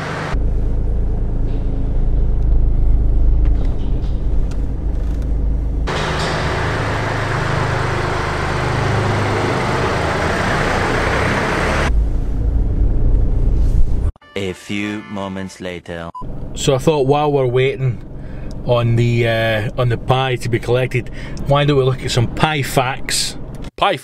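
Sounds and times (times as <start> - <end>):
car engine rumble inside cabin: 0.0 - 14.1.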